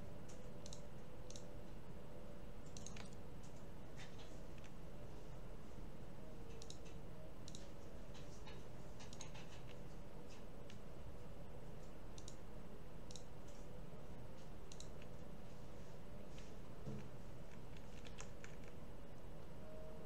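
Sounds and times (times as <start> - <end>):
low background hum: 0.0 - 20.0
computer mouse clicking: 0.2 - 1.5, 2.6 - 4.8, 6.5 - 10.8, 11.8 - 13.7, 14.4 - 15.2, 17.4 - 18.8.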